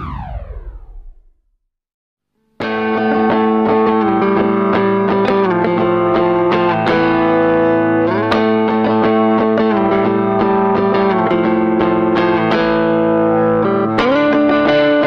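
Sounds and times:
electric guitar with effects: 2.6 - 15.0.

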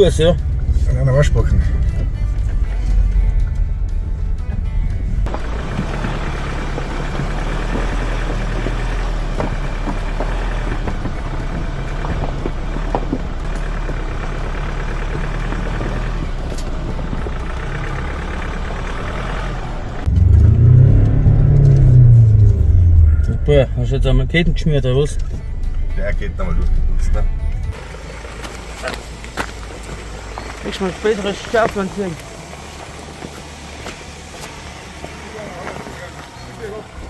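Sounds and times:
engine and tyre rumble: 0.0 - 37.0
engine revving: 0.0 - 37.0
knocks and clunks: 4.4 - 17.9.

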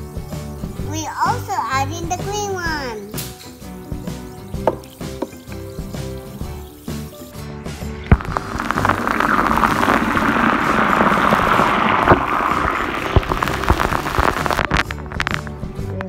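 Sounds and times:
bath bombs fizzing in water: 3.6 - 15.6.

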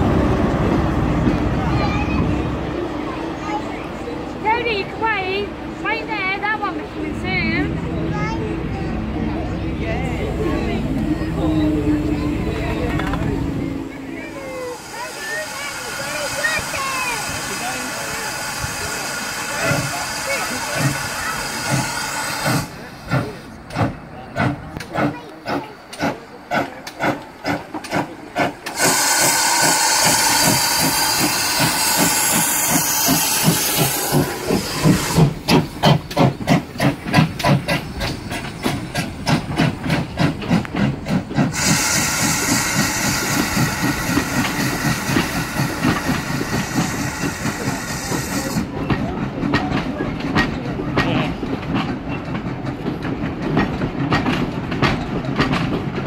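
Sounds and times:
steam locomotive exhaust beats: 0.0 - 56.0
hissing steam: 14.4 - 56.0.

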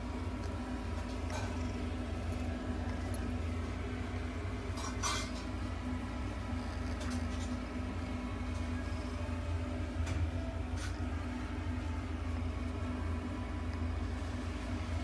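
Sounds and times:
cat purring: 0.0 - 9.9.

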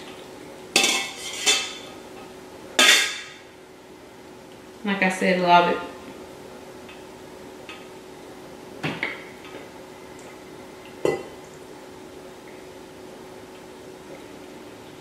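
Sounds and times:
metal ladle clanking on pot: 0.8 - 1.9.

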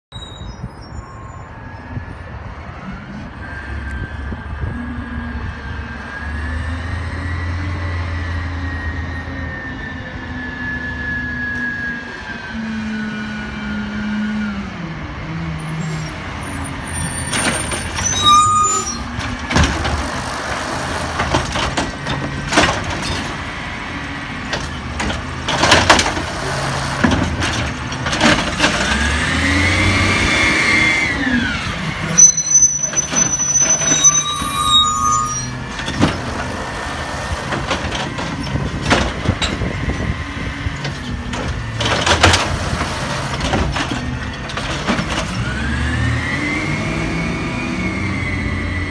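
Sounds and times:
air brakes hissing and squealing: 0.1 - 2.2, 15.6 - 19.2, 31.2 - 37.6
garbage truck engine: 4.3 - 48.9.

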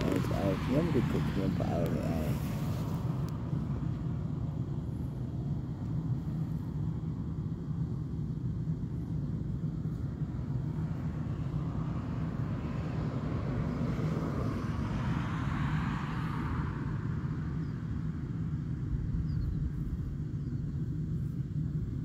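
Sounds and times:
car passing: 0.0 - 7.4, 9.7 - 18.8
steady low rumble: 0.0 - 22.0.

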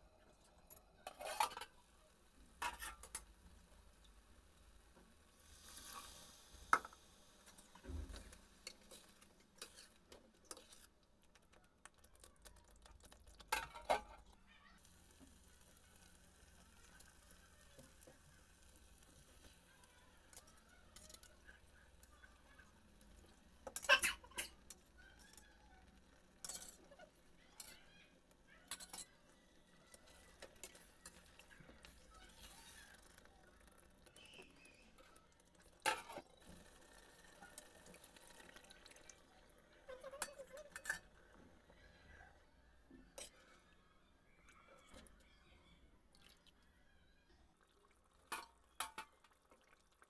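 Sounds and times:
faint sizzle: 0.0 - 50.0
metal spatula scraping steel pan: 1.0 - 1.7, 2.6 - 3.2, 7.8 - 10.9, 26.4 - 27.8, 39.9 - 41.1.

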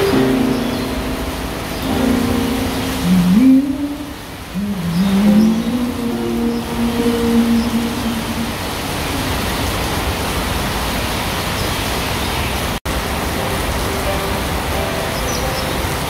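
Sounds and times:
held sung note: 1.8 - 9.0.

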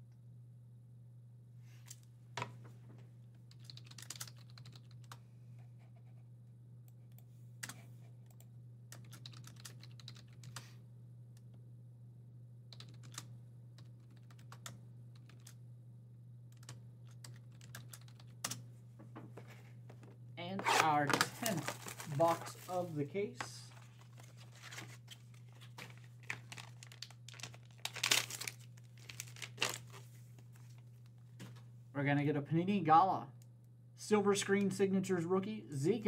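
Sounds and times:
steady low hum: 0.0 - 36.0
keyboard typing clicks: 12.7 - 15.6.

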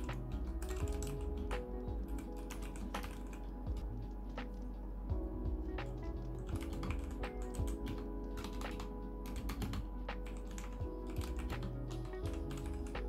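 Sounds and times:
mechanical keyboard typing: 0.0 - 3.9, 5.9 - 13.0
background music: 0.0 - 13.0.

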